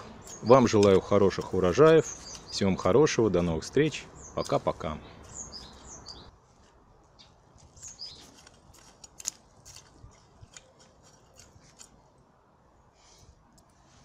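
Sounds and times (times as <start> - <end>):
bird chirping: 0.0 - 6.4, 7.1 - 8.6
hoe scraping through soil: 0.0 - 6.8.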